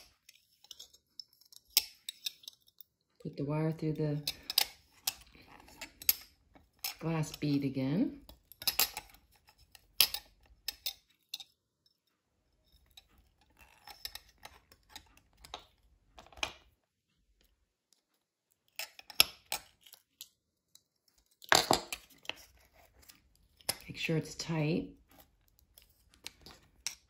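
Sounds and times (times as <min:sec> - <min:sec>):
small metal clicks and taps: 0:00.0 - 0:02.9, 0:04.2 - 0:07.5.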